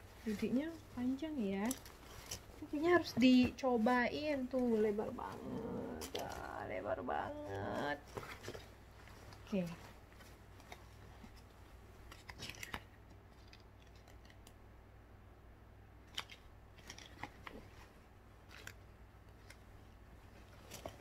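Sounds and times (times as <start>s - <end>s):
cardboard tag and straps clicking: 8.0s - 14.6s.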